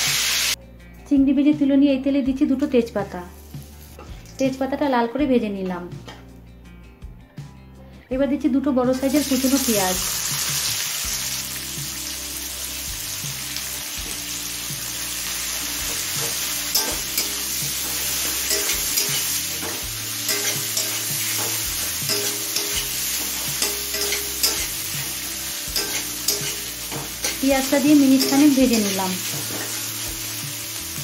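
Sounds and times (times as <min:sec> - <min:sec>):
onions sizzling in hot oil: 0:00.0 - 0:00.6, 0:09.0 - 0:31.0.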